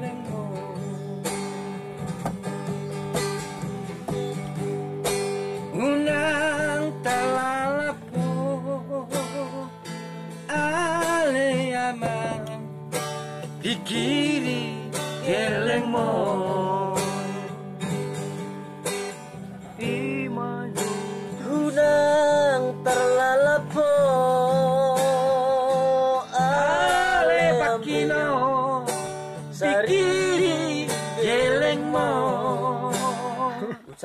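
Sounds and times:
man singing: 0.0 - 1.3, 5.7 - 9.8, 10.5 - 12.8, 13.5 - 17.6, 19.7 - 34.0
acoustic guitar strumming: 0.0 - 34.0.

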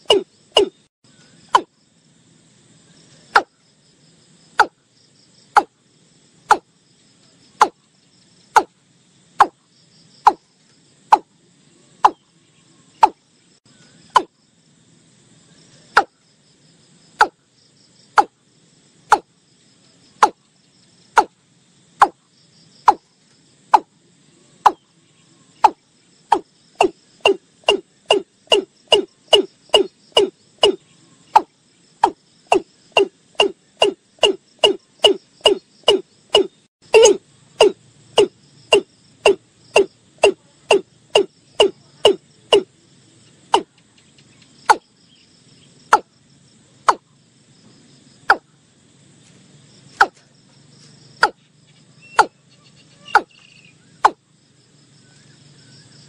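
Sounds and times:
bird calling short sharp notes: 31.4 - 42.6.

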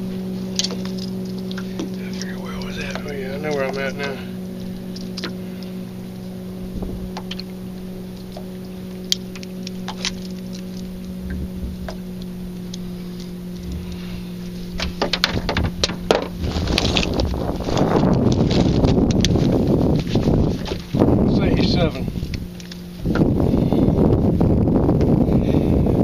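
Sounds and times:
boat motor humming: 0.0 - 26.0
knocks and rustling of fish handling: 0.5 - 2.0, 8.2 - 12.2, 14.6 - 21.0.

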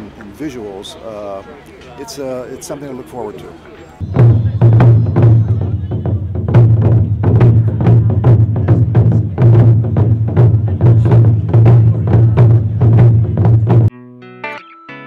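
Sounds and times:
barrel drums struck with sticks: 4.0 - 13.9.

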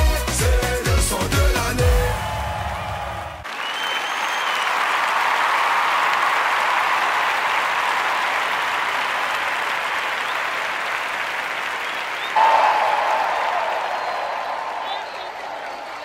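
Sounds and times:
audience applauding: 1.9 - 16.0
loud held note: 12.4 - 15.8.

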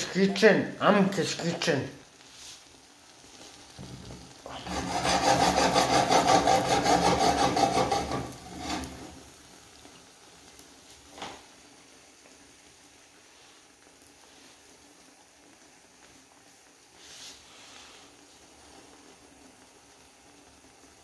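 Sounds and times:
pulsed rasping scrape: 4.5 - 9.1.

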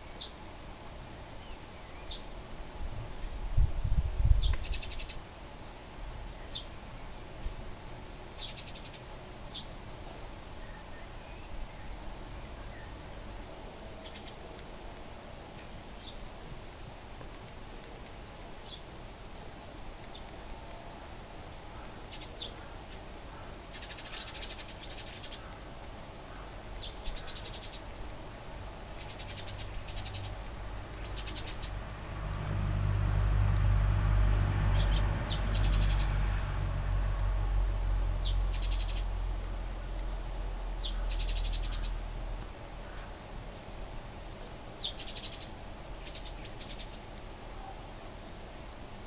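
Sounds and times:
sparrows chattering: 8.4 - 13.0, 21.7 - 25.7, 26.3 - 27.8, 28.9 - 31.9, 34.8 - 36.1, 37.6 - 39.1, 40.8 - 42.0, 44.8 - 47.0.

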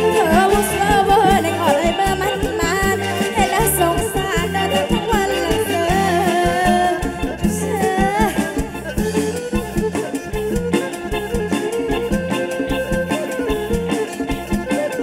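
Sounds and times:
drum kit and electric band: 0.0 - 15.0
person singing: 0.0 - 15.0.

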